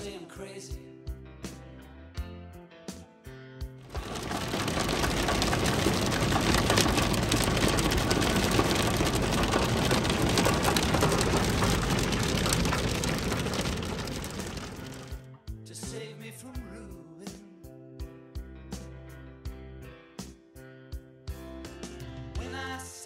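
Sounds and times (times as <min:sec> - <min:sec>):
hail and rain on car roof: 0:03.8 - 0:15.2.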